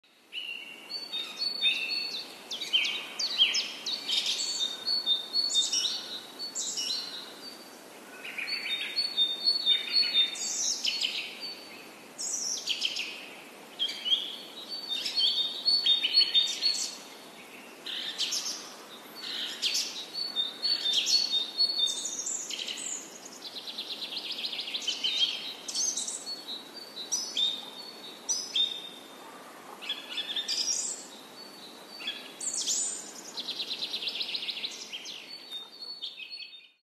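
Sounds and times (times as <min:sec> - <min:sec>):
birds chirping and singing: 0:00.4 - 0:07.6, 0:29.7 - 0:36.8.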